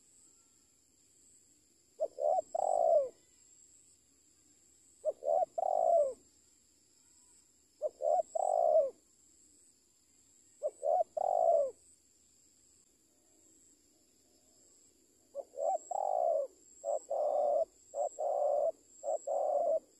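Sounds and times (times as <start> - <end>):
dove cooing: 2.0 - 3.2, 5.0 - 6.2, 7.8 - 9.0, 10.6 - 11.8, 15.3 - 19.9.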